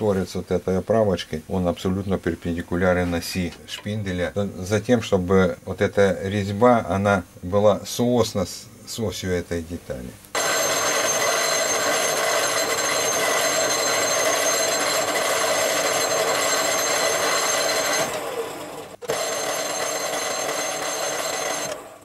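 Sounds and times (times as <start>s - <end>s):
metal lathe whining: 10.4s - 22.0s.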